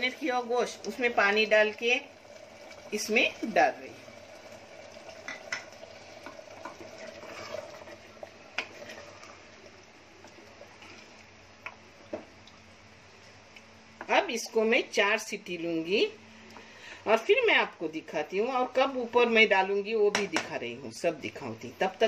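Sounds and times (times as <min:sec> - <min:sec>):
spatula stirring thick curry: 0:06.6 - 0:09.5.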